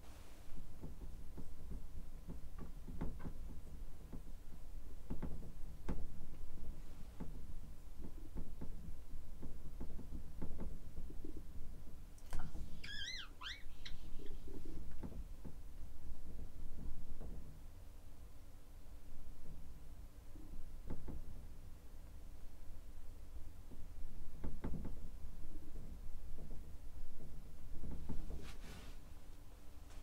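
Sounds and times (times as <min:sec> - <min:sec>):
marker tip squeak: 0:12.8 - 0:14.0.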